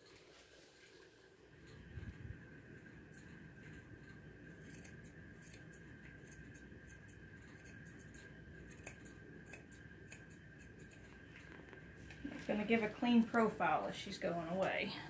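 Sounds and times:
scissors snipping hair: 2.8s - 11.5s.

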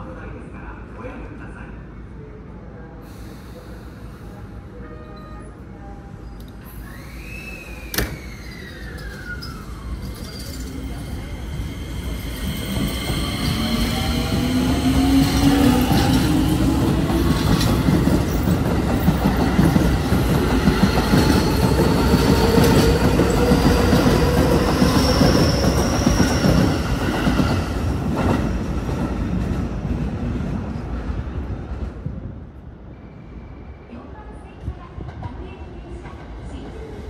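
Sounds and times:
high wheel squeal: 6.7s - 13.9s
train wheels rumbling on rail: 7.9s - 32.6s.

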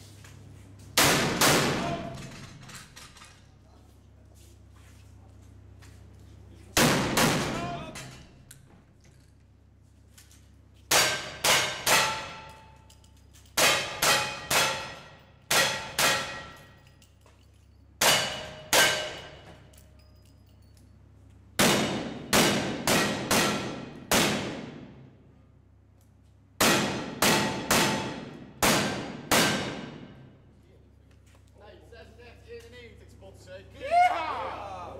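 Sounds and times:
rifle shots: 1.0s - 2.2s, 6.8s - 7.7s, 21.6s - 24.9s, 26.6s - 30.1s
steel plate target ringing: 10.9s - 12.8s, 13.6s - 16.9s, 18.0s - 19.5s.

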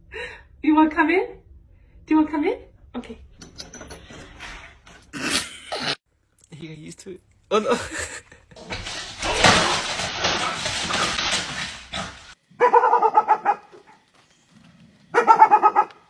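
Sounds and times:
dog barking rapidly: 12.6s - 14.0s, 15.1s - 16.0s.

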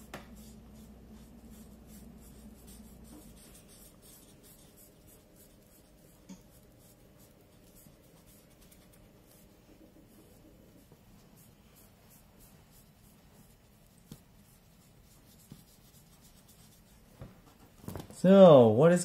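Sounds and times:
markers rubbing on paper: 0.0s - 17.2s.

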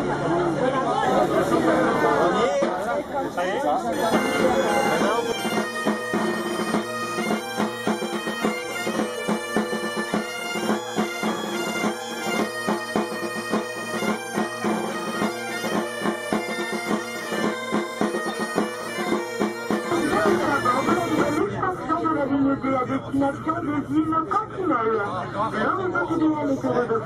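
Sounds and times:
bagpipes playing a melody: 3.9s - 21.4s.

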